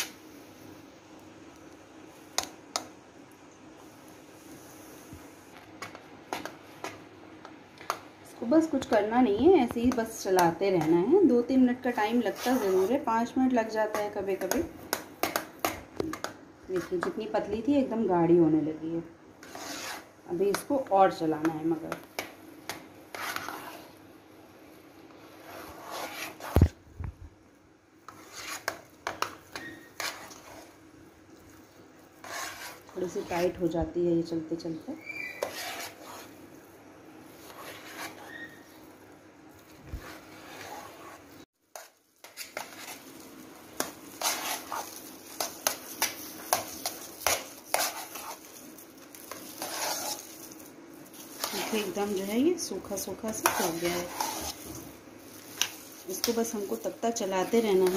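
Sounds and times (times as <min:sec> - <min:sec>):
spoon scraping steel bowl: 0:11.9 - 0:13.2, 0:19.4 - 0:20.7, 0:23.1 - 0:23.9, 0:25.4 - 0:26.6, 0:28.1 - 0:30.8, 0:32.2 - 0:33.6, 0:35.2 - 0:36.4, 0:37.4 - 0:38.7, 0:40.0 - 0:43.0, 0:43.8 - 0:48.5, 0:49.1 - 0:57.9
clicks and scrapes against bowl: 0:35.4 - 0:36.3, 0:43.8 - 0:48.4, 0:51.4 - 0:51.9, 0:53.3 - 0:54.6.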